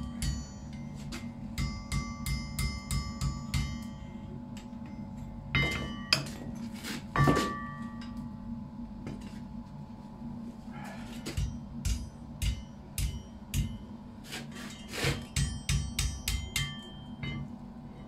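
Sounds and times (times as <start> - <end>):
hammer ringing on anvil: 0.0 - 6.5, 7.2 - 8.2, 11.3 - 13.9, 14.7 - 17.6
steady low hum: 0.0 - 18.0.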